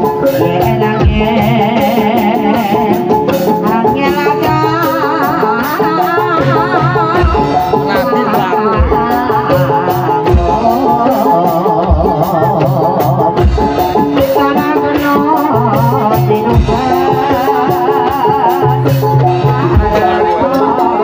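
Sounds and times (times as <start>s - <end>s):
hand drums: 0.0s - 21.0s
wavering melody line: 3.5s - 21.0s.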